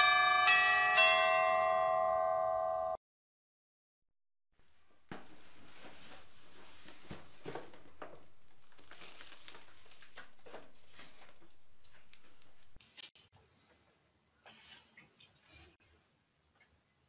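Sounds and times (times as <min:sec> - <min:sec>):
rustles and knocks of handling: 0:05.0 - 0:13.0.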